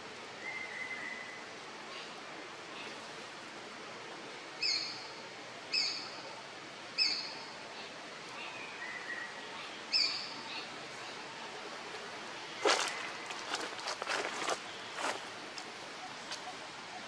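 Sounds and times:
bird calling: 0:12.6 - 0:17.0.

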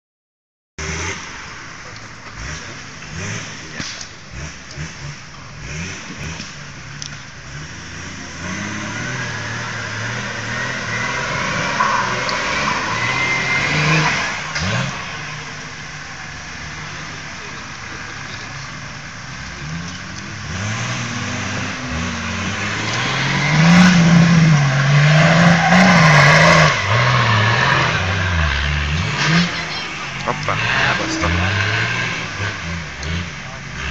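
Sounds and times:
off-road vehicle engine revving: 0:00.8 - 0:33.9.

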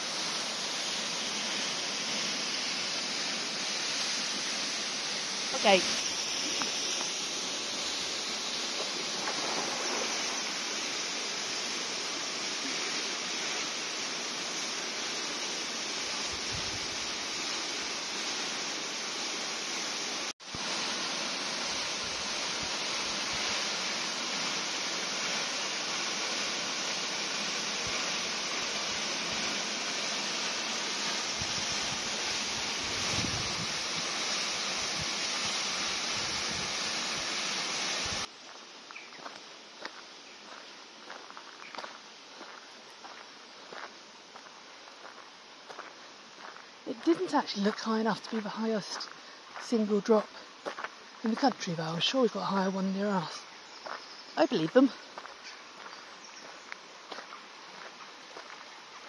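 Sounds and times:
waterfall rushing: 0:00.0 - 0:38.3.

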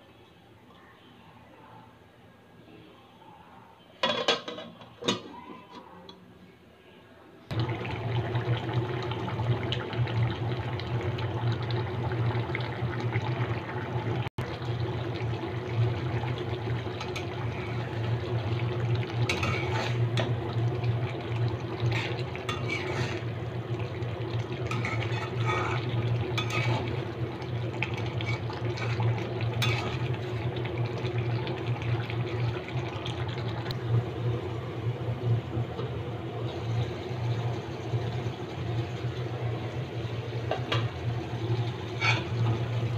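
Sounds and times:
curry bubbling in wok: 0:07.5 - 0:42.9
metal spatula scraping pan: 0:19.3 - 0:20.0, 0:21.9 - 0:23.3, 0:24.7 - 0:26.9, 0:28.0 - 0:30.0, 0:42.0 - 0:42.4.

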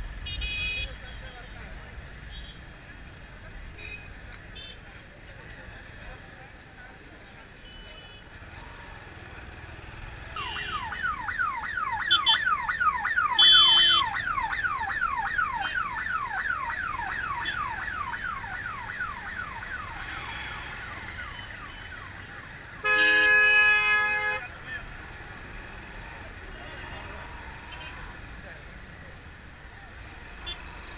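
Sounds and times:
vehicle horns honking: 0:00.2 - 0:01.1, 0:10.4 - 0:11.0, 0:13.4 - 0:14.1, 0:22.8 - 0:24.5.

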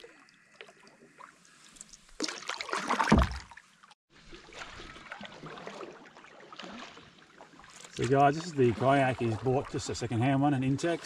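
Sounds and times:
water splashing off paddle: 0:02.2 - 0:03.6, 0:04.2 - 0:10.0.

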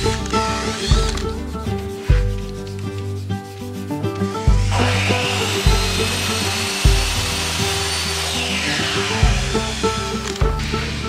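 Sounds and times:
background music with bass beat: 0:00.0 - 0:11.0
power sander on wood: 0:04.6 - 0:11.0.

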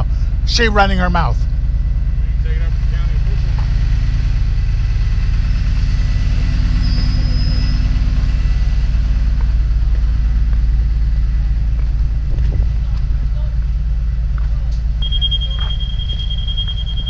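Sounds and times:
bus engine idling: 0:00.0 - 0:17.0.

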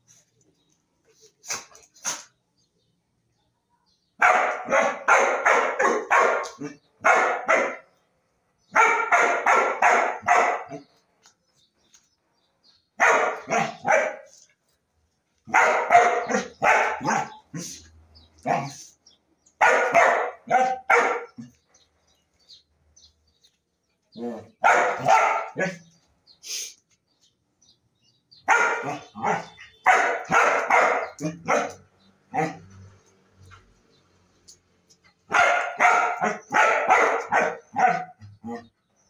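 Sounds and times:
small dog barking: 0:04.2 - 0:07.8, 0:08.7 - 0:10.8, 0:13.0 - 0:14.3, 0:15.5 - 0:17.7, 0:19.6 - 0:21.5, 0:24.3 - 0:25.8, 0:28.4 - 0:32.6, 0:35.3 - 0:38.2.

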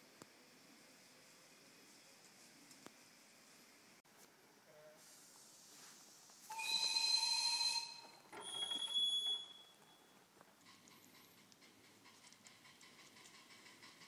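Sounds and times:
faint steady hiss: 0:00.0 - 0:06.7
steam whistle blasts: 0:06.5 - 0:08.0.

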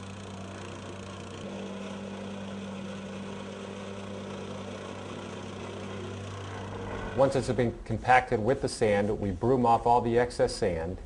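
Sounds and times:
plate compactor engine running: 0:00.0 - 0:07.6.

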